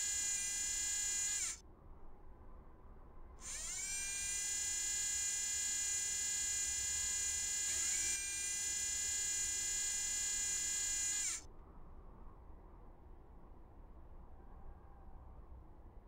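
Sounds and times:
small electric motor whine: 0:00.0 - 0:01.6, 0:03.4 - 0:11.4.

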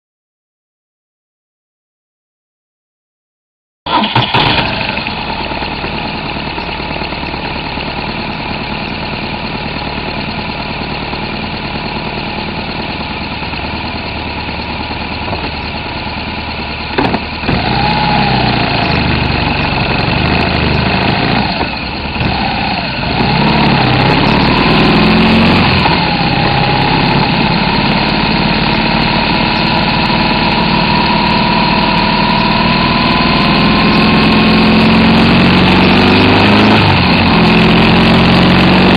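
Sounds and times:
motorcycle engine: 0:03.9 - 0:38.9
sharp clunk: 0:17.0 - 0:17.6.

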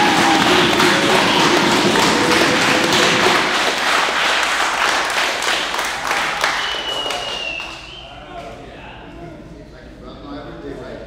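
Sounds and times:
people clapping fast: 0:00.0 - 0:08.0.

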